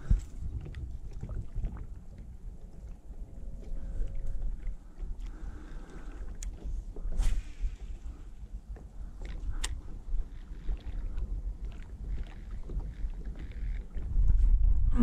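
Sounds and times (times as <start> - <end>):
water lapping: 0.0 - 14.3
wind rumbling on microphone: 0.0 - 15.0.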